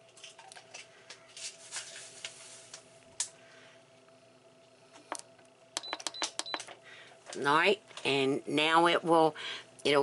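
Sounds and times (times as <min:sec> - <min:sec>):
faint steady hum: 0:00.0 - 0:10.0
button clicks: 0:05.8 - 0:06.7.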